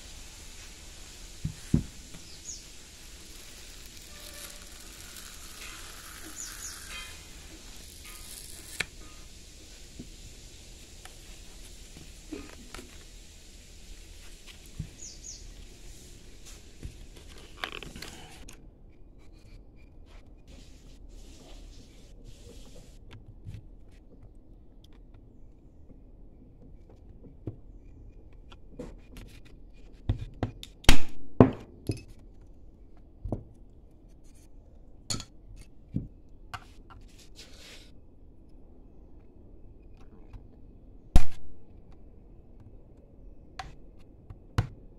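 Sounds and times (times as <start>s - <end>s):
hands rubbing plastic: 0.2s - 13.2s, 13.8s - 18.5s
knife blade scratching: 3.2s - 9.3s.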